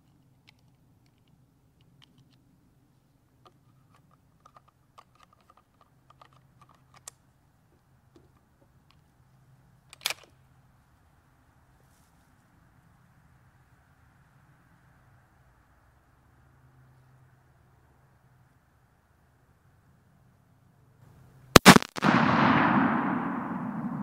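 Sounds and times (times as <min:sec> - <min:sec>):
rifle handling clicks: 0:00.0 - 0:02.4, 0:03.4 - 0:07.3, 0:09.8 - 0:10.4.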